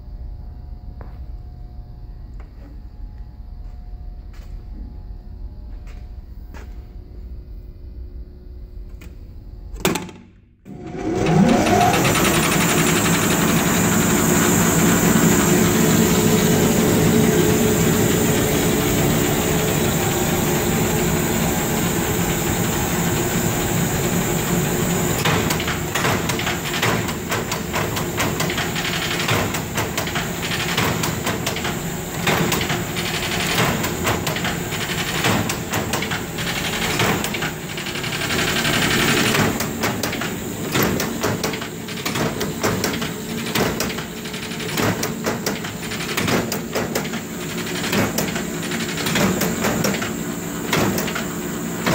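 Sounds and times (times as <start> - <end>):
rattle of clicks and knocks: 25.2 - 51.9.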